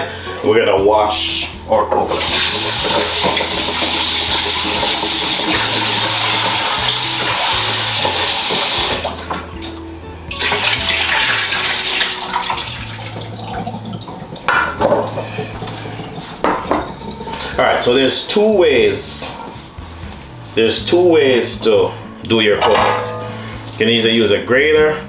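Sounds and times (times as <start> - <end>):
tap water running into metal bowl: 2.0 - 18.3
metal bowl clank: 13.1 - 18.0, 22.6 - 23.6.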